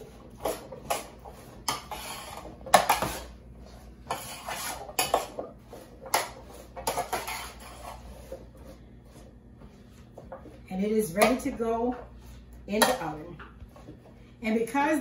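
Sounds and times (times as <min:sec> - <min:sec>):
metal spoon scraping roasting pan: 0:00.0 - 0:03.4, 0:04.0 - 0:08.8.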